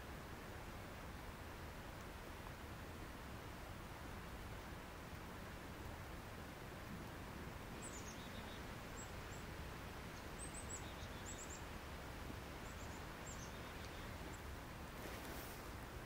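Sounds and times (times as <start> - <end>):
steady background hiss: 0.0 - 16.0
small birds chirping: 7.5 - 15.6.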